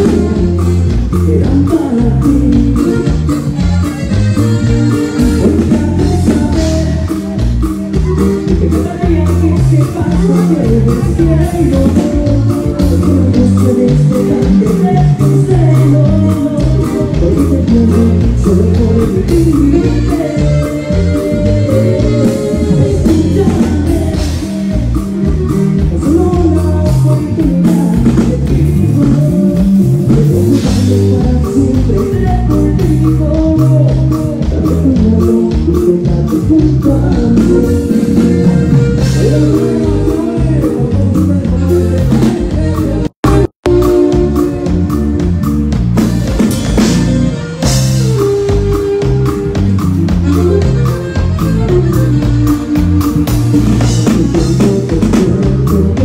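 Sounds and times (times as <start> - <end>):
man singing: 0.0 - 45.7, 46.5 - 56.0
bass: 0.0 - 56.0
drum kit: 0.0 - 56.0
strummed guitar: 0.0 - 56.0.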